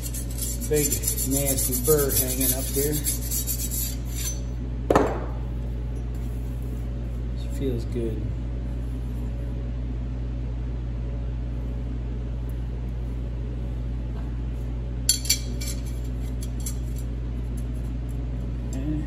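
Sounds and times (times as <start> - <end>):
metal ring gear clinking: 0.0 - 4.5
steady low hum: 0.0 - 19.0.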